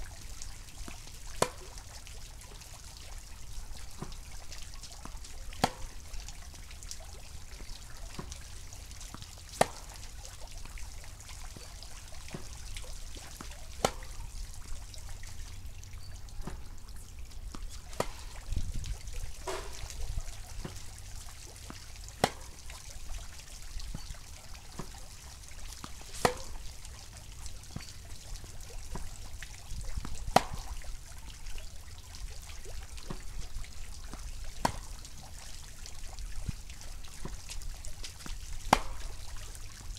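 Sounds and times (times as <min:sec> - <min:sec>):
racket hitting tennis ball: 0:01.4 - 0:01.8, 0:05.6 - 0:06.0, 0:08.2 - 0:08.4, 0:09.6 - 0:10.0, 0:12.3 - 0:14.2, 0:16.4 - 0:16.7, 0:17.5 - 0:18.5, 0:19.3 - 0:20.9, 0:21.6 - 0:22.6, 0:24.8 - 0:25.0, 0:25.8 - 0:26.6, 0:30.3 - 0:30.8, 0:34.6 - 0:34.8, 0:38.7 - 0:39.2
tennis ball bouncing: 0:01.4 - 0:01.8, 0:05.6 - 0:06.0, 0:08.2 - 0:08.4, 0:09.6 - 0:10.0, 0:12.3 - 0:14.2, 0:16.4 - 0:16.8, 0:17.4 - 0:18.5, 0:19.3 - 0:20.9, 0:21.6 - 0:22.6, 0:25.8 - 0:26.6, 0:30.3 - 0:30.8, 0:33.1 - 0:33.3, 0:34.6 - 0:34.8, 0:38.2 - 0:39.2.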